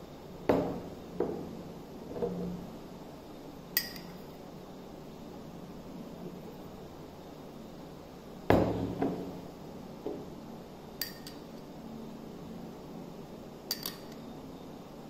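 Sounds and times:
light glass clinks: 3.8s - 4.2s, 11.0s - 11.4s, 13.7s - 14.2s.

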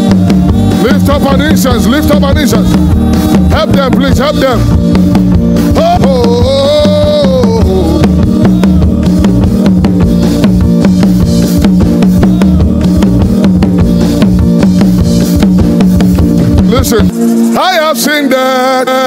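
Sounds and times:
drum kit beat: 0.0s - 18.4s
worship band music: 0.0s - 19.0s.

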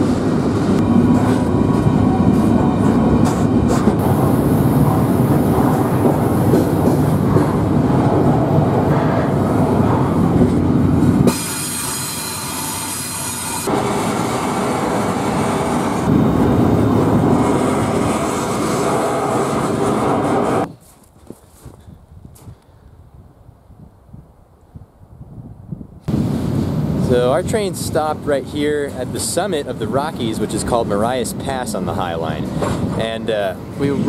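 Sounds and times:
freight train rumble and rattle: 0.0s - 20.7s, 26.1s - 34.0s
steel wheel squeal: 11.3s - 14.2s.

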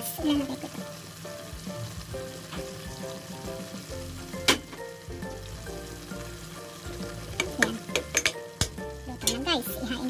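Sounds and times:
food sizzling in a pan: 0.0s - 10.0s
soft background music: 0.0s - 10.0s
wooden spatula stirring: 6.3s - 9.4s
utensil knock: 7.3s - 8.8s.

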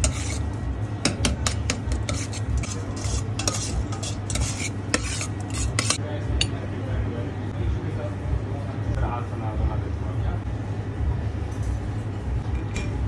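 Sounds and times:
metal spoon scraping bowl: 0.0s - 6.0s.

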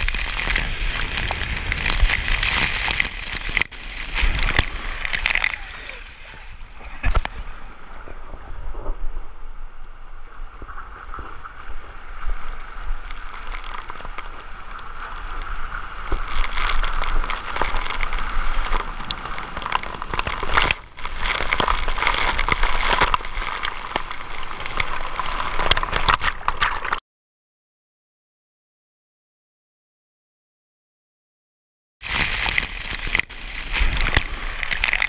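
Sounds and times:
water rushing and splashing: 0.0s - 8.3s, 32.0s - 35.0s.

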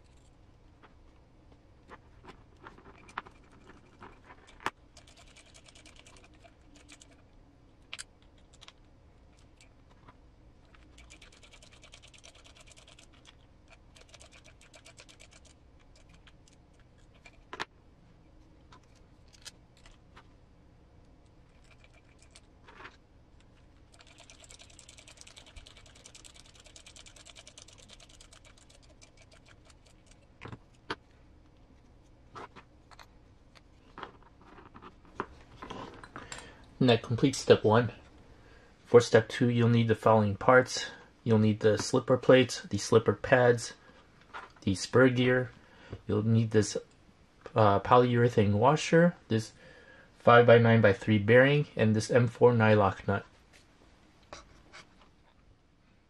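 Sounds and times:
small parts and tools clicking: 2.6s - 10.0s, 10.6s - 17.7s, 18.7s - 20.0s, 21.2s - 31.0s.

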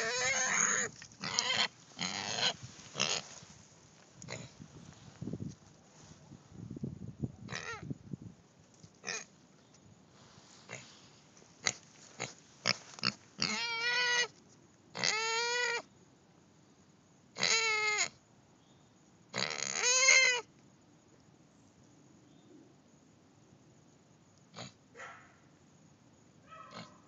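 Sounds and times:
pig grunting: 0.0s - 3.3s, 4.2s - 4.6s
pig squealing: 0.0s - 3.3s, 7.5s - 7.8s, 13.4s - 14.3s, 15.0s - 15.9s, 17.4s - 18.1s, 19.4s - 20.5s, 26.7s - 27.0s.

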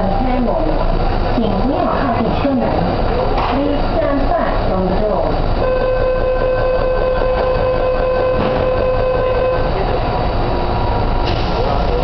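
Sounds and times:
train rumbling: 0.0s - 12.0s
door-closing warning tone: 5.6s - 9.9s.

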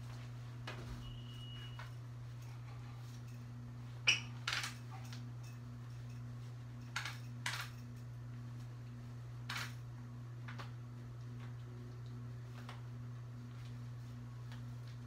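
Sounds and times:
steady low hum: 0.0s - 15.0s
faint pulsing tone: 0.9s - 2.0s.

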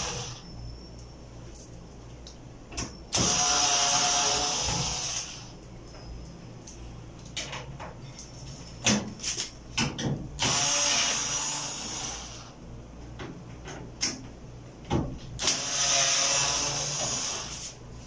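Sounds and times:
knocks and clicks of handling tools: 7.2s - 10.3s, 13.2s - 15.3s.

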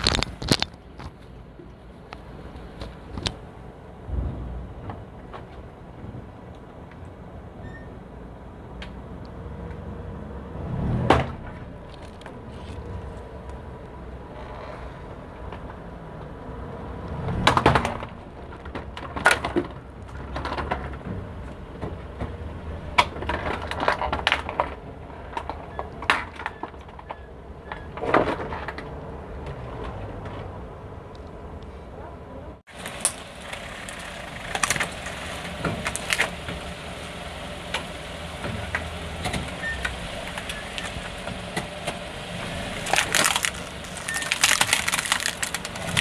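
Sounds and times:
plastic cracking and snapping: 0.0s - 1.2s, 32.8s - 35.1s, 35.8s - 36.3s, 42.8s - 46.0s
low engine hum: 0.0s - 46.0s.

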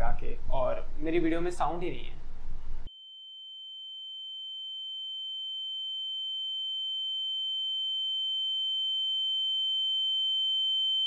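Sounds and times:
high-pitched sine tone: 2.8s - 11.0s.

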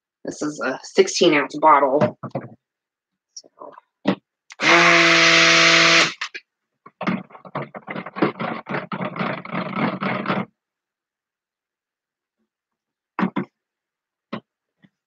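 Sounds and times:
stick blender running: 4.5s - 6.4s.

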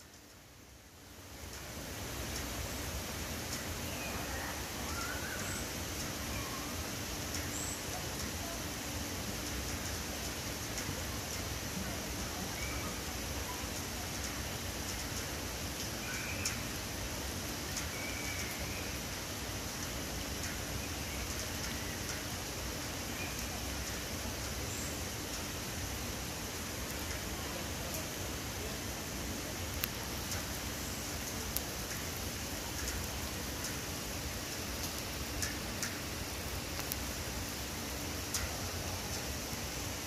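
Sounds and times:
steady rain falling: 0.0s - 40.0s
faint bird call: 3.8s - 8.6s
drips ticking: 17.7s - 22.4s, 29.7s - 37.2s.

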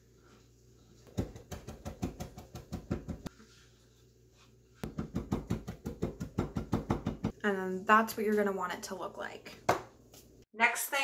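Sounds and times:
knife chopping on cutting board: 4.8s - 7.3s.

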